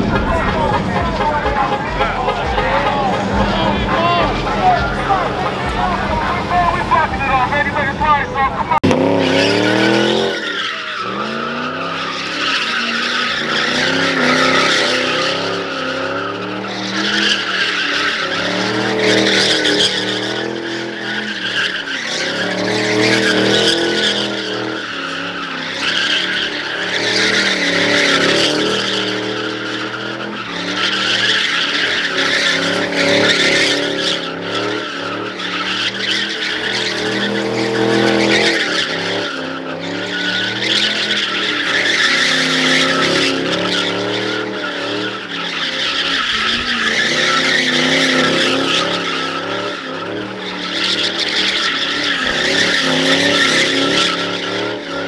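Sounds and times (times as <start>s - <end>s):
car engine revving: 0.0s - 55.0s
tires screeching: 0.0s - 55.0s.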